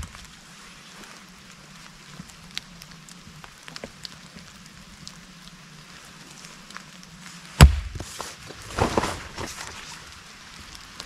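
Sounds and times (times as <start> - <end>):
steady rain: 0.0 - 11.0
hatchet chopping wood: 7.6 - 8.1.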